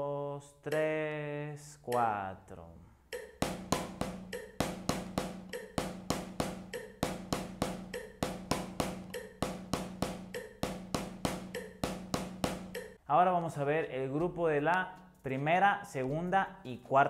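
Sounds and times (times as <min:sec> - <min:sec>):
metronome clicking: 0:00.7 - 0:02.1, 0:03.1 - 0:13.0
drumsticks on practice pad: 0:03.1 - 0:13.0.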